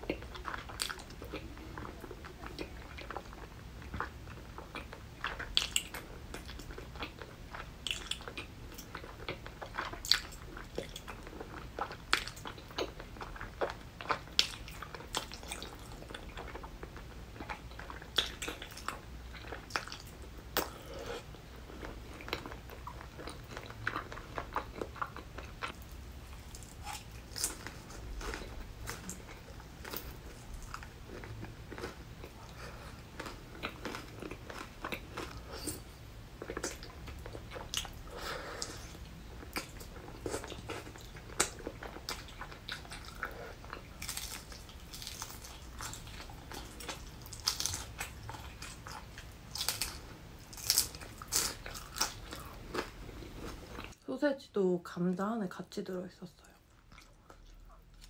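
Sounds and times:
sharp food crunches: 44.0 - 46.0, 47.2 - 48.7, 49.5 - 52.8
person biting and chewing: 44.0 - 53.8.

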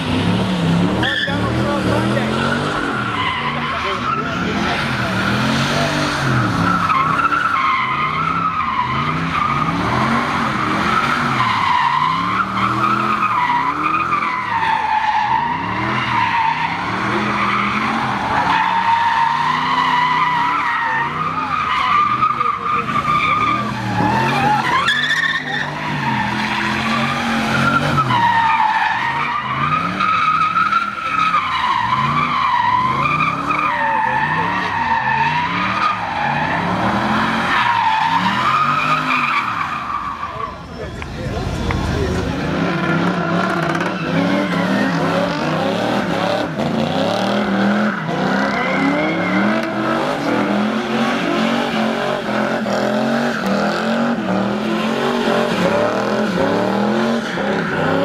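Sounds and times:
engine revving: 0.0 - 7.2, 41.0 - 58.0
tyres squealing: 1.0 - 58.0.

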